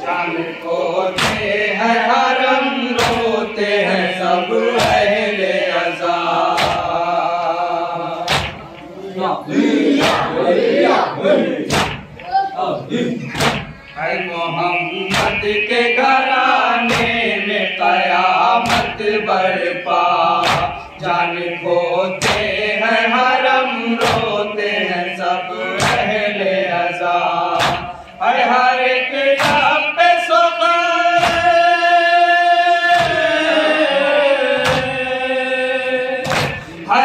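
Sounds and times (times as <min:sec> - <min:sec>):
man chanting into a microphone: 0:12.7 - 0:37.0.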